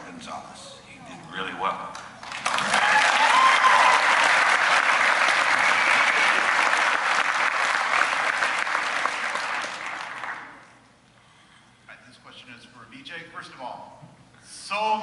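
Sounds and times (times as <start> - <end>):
audience applauding: 2.0 - 10.7.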